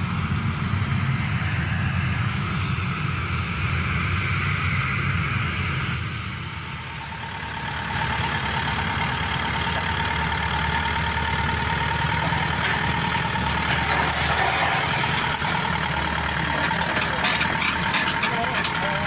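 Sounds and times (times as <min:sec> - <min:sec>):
combine harvester diesel engine: 0:00.0 - 0:19.0.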